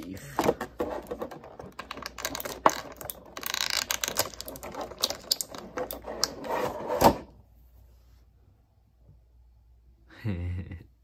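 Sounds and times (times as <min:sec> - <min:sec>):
plastic parts clicking and rattling: 0:00.0 - 0:06.8.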